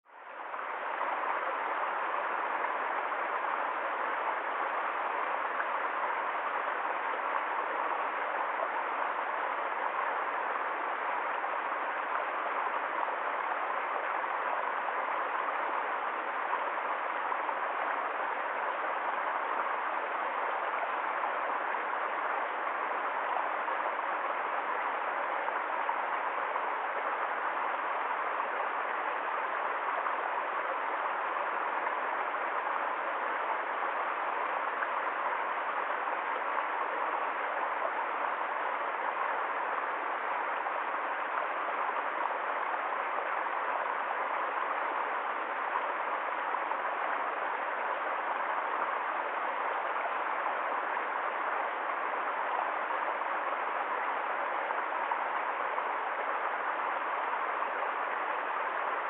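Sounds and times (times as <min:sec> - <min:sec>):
stream flowing over rocks: 0:00.1 - 0:59.0.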